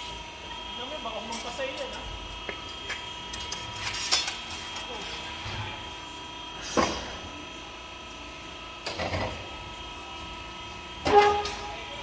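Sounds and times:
mechanical hum: 0.0s - 12.0s.

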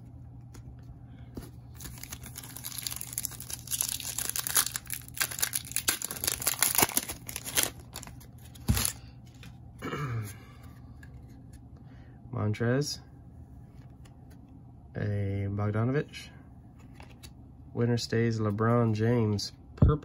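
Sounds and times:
foil wrapper crinkling and tearing: 1.7s - 9.0s.

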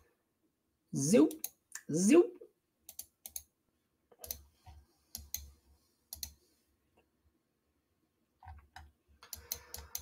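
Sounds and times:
computer mouse and keyboard clicks: 2.9s - 3.5s, 4.1s - 5.5s, 6.1s - 6.4s, 8.4s - 10.0s.

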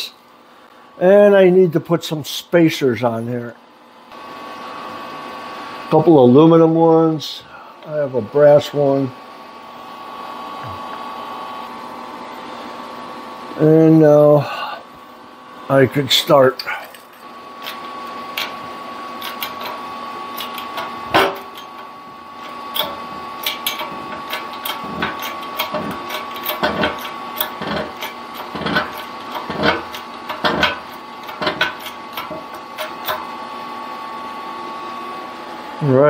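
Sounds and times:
hydraulic press clicks and knocks: 17.6s - 33.3s.

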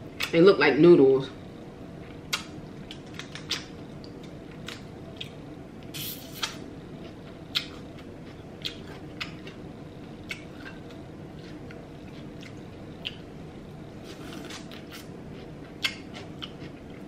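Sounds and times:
wet chewing of noodles: 6.0s - 13.3s, 13.9s - 17.0s.

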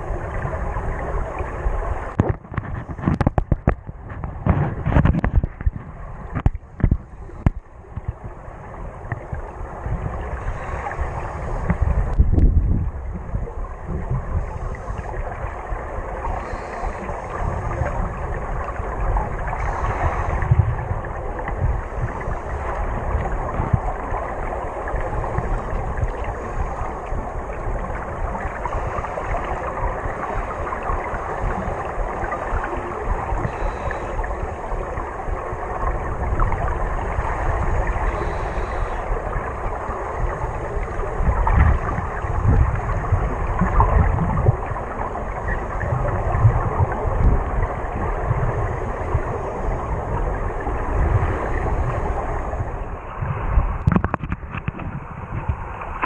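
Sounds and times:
muffled underwater rush: 0.0s - 56.0s.

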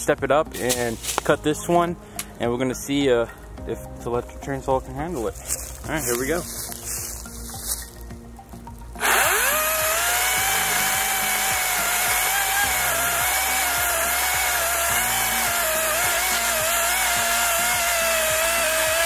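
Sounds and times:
chainsaw cutting a stump: 9.0s - 19.0s.

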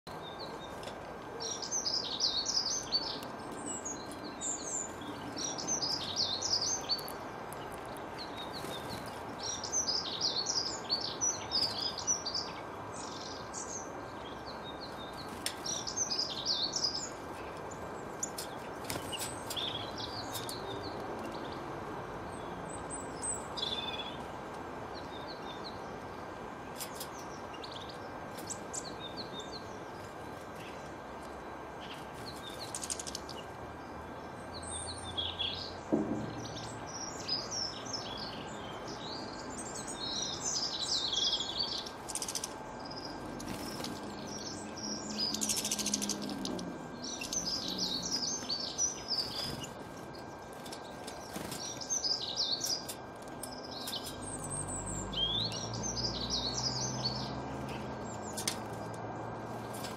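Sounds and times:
songbirds twittering: 0.0s - 59.9s.

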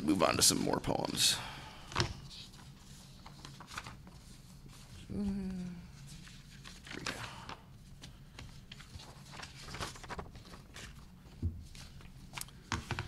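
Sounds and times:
paper rustling: 2.0s - 5.1s, 5.9s - 13.0s.

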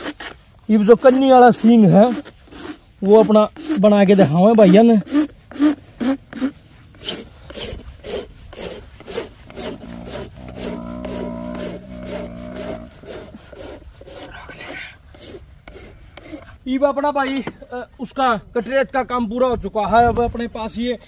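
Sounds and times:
steel file rasping on horn: 0.0s - 16.6s.

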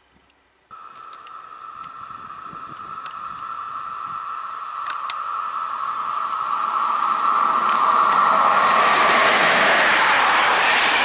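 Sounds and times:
faint clicks: 0.2s - 2.0s, 2.7s - 3.5s, 4.8s - 5.2s
electric train approaching: 0.7s - 11.0s
high whine: 0.7s - 11.0s.

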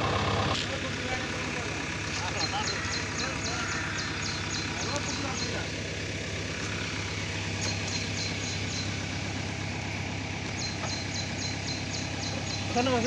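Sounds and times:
diesel engine idling: 0.0s - 13.0s
high-pitched chirping pulses: 6.9s - 9.6s, 10.4s - 13.0s.

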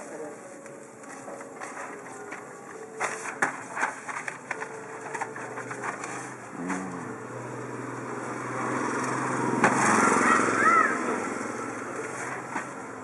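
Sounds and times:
motorbike engine passing: 5.0s - 13.0s.

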